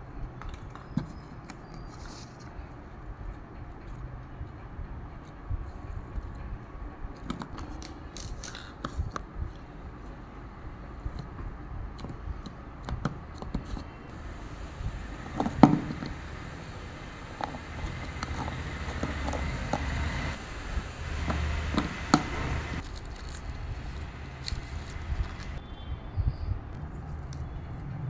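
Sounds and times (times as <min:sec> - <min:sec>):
low background rumble: 0:09.0 - 0:25.6
cardboard and paper handling: 0:22.8 - 0:25.6.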